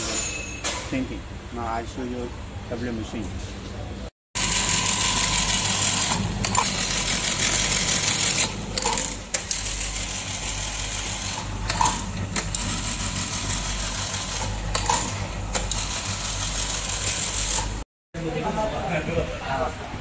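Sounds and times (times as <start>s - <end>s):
sewing machine running: 4.4s - 17.8s.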